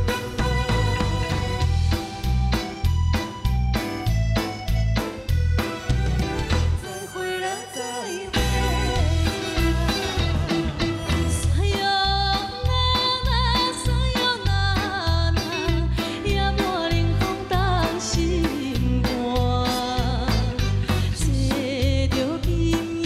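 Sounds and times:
band accompaniment with bass beat: 0:00.0 - 0:23.0
woman singing with vibrato: 0:06.8 - 0:23.0.

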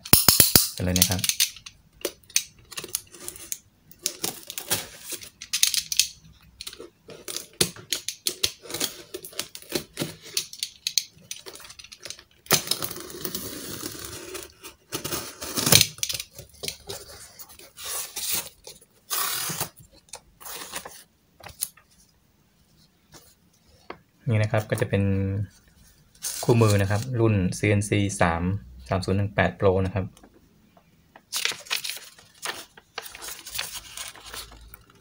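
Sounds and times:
tape tearing: 0:02.8 - 0:06.1, 0:11.5 - 0:19.8, 0:20.4 - 0:21.7.

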